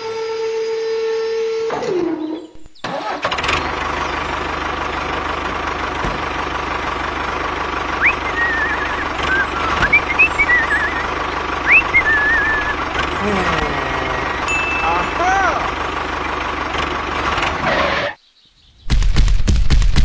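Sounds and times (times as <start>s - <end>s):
tractor engine running: 2.5s - 18.1s
high warbling chirps: 8.0s - 13.2s.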